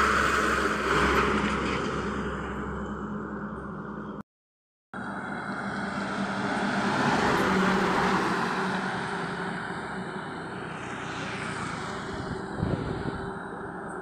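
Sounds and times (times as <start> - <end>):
heavy truck driving past: 5.0 - 14.0.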